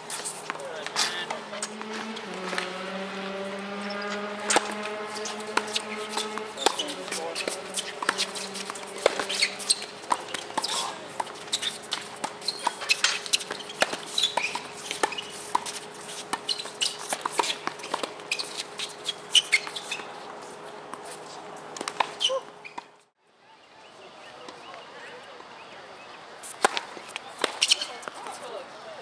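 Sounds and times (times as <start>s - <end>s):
tennis balls struck by rackets: 0.0s - 23.0s, 26.5s - 28.4s
tennis balls bouncing on court: 0.1s - 23.0s, 26.5s - 28.5s
short high squeaks: 5.2s - 20.2s, 22.0s - 23.0s.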